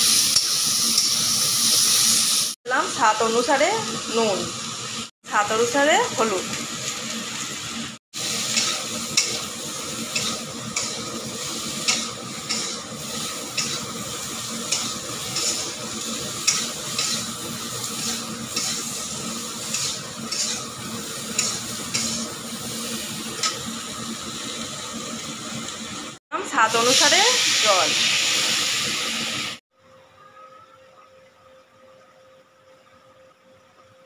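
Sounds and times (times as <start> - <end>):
sizzle of frying in oil: 0.0 - 29.6
metal spatula scraping a pan: 14.7 - 15.8, 19.6 - 20.7, 21.4 - 22.3.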